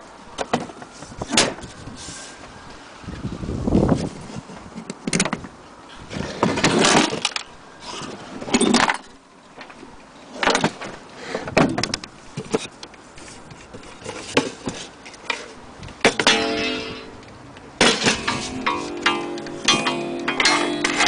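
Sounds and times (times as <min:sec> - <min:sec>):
wooden cases knocking and scraping: 0:10.4 - 0:17.0.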